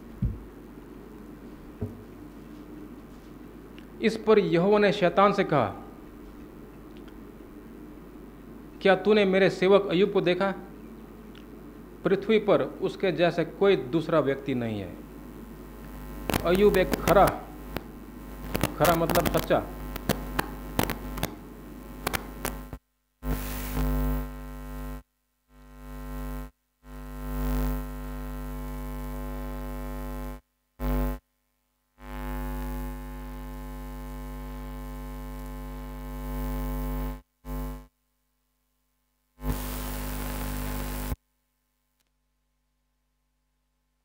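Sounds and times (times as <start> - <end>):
electrical mains hum and buzz: 0.0 - 41.2
short clicks: 16.3 - 21.4, 22.0 - 22.8.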